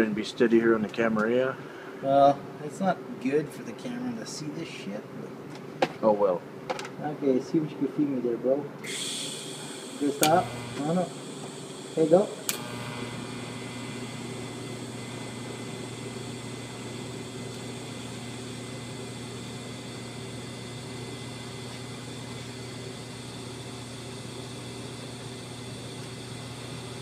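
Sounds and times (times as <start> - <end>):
welding arc humming and hissing: 8.8 - 27.0.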